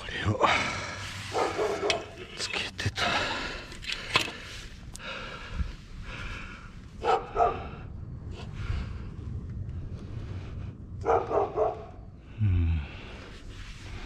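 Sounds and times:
dog barking: 1.3 - 2.2, 7.0 - 7.8, 11.0 - 12.0.

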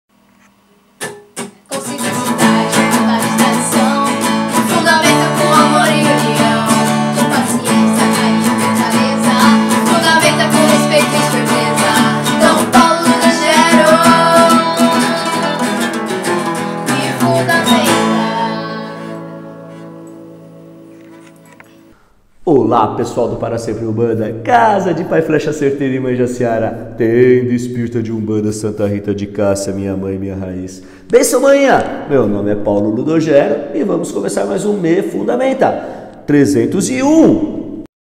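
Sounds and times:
acoustic guitars strummed: 1.0 - 21.9
women singing: 1.7 - 19.3.

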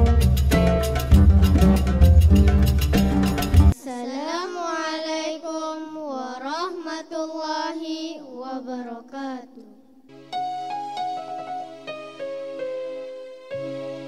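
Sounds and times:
loud drum-beaten music: 0.0 - 3.8
soft keyboard tune: 10.1 - 14.0.

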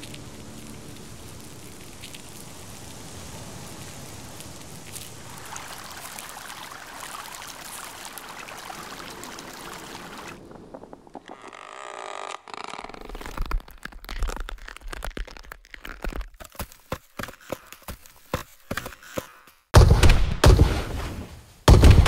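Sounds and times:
crackling and snapping wood: 10.2 - 19.6.

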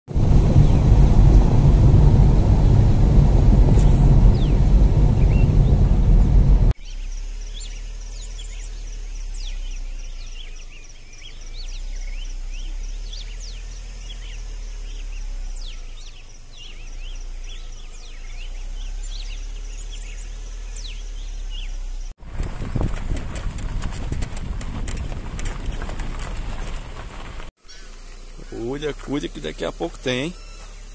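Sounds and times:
low rumble: 0.1 - 27.5
rising bird chirps: 3.8 - 6.2, 6.8 - 22.1, 27.6 - 30.9
pulsing insect trill: 27.7 - 30.9.

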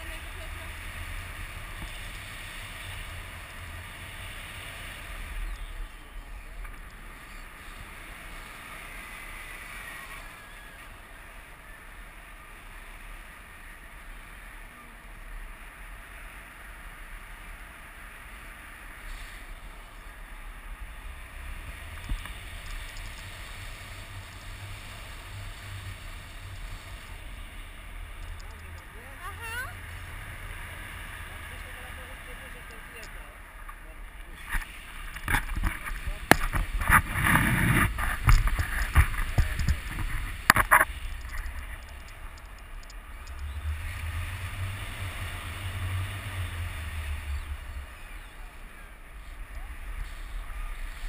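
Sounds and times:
wind rushing over microphone: 34.4 - 51.0.

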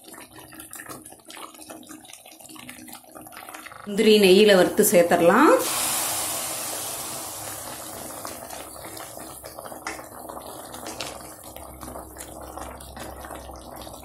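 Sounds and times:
wet bubbling hiss: 5.5 - 14.0.

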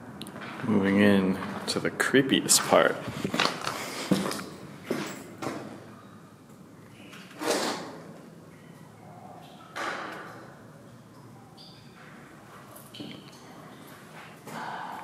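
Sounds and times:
footsteps echoing on concrete: 3.1 - 5.2.

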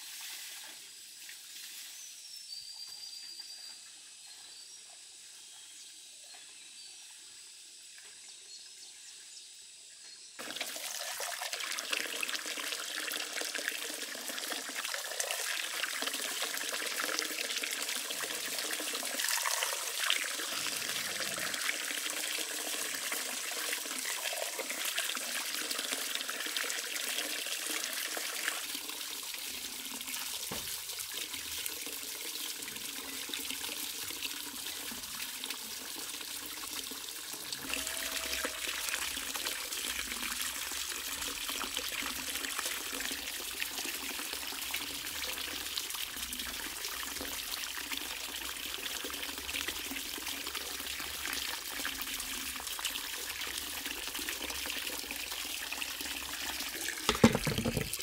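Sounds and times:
water splashing into metal basin: 57.0 - 58.0.

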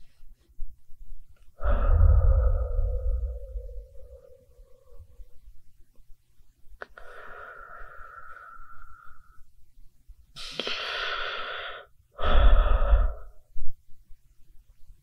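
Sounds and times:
person breathing: 1.6 - 5.4, 6.8 - 9.6, 10.4 - 13.6.

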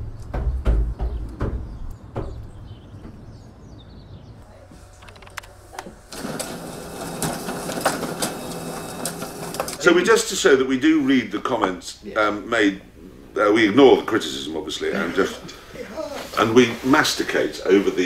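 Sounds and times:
knocks and clicks: 0.0 - 3.2
laser printer feeding pages: 4.7 - 9.8.

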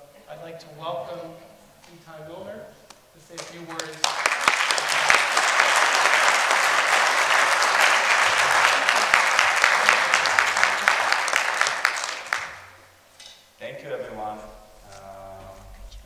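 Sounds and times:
audience applauding: 3.3 - 12.9.

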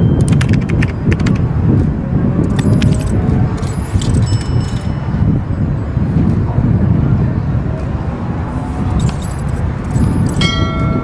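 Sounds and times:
metallic clicks and jingles: 0.0 - 1.5, 2.4 - 5.3, 8.9 - 11.0.

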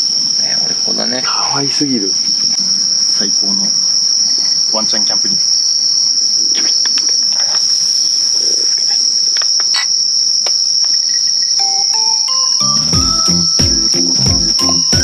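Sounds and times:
night insects chorus: 0.0 - 15.0
rising chime-like notes: 11.6 - 15.0.

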